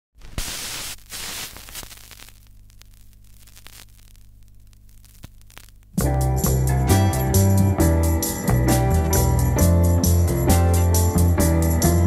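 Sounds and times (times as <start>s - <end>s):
vinyl crackles and pops: 0.2s - 6.6s
vinyl hiss: 0.2s - 11.2s.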